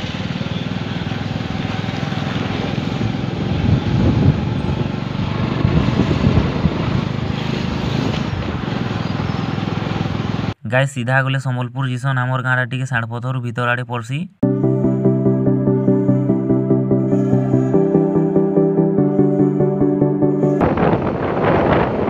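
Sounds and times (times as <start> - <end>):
motorcycle engine running: 0.0 - 10.5
wind and road noise: 0.0 - 10.6, 20.6 - 22.0.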